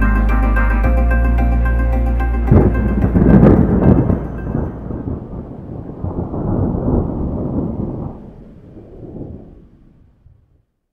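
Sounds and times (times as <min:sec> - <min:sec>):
thunder crack and rumble: 0:02.5 - 0:10.7.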